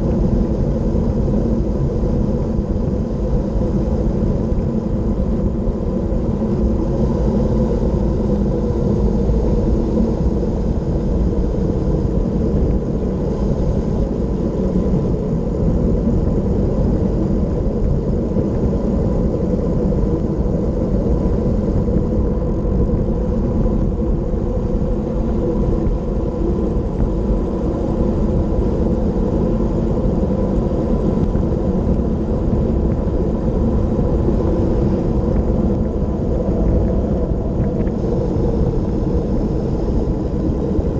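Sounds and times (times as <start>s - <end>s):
wind buffeting microphone: 0.0s - 40.9s.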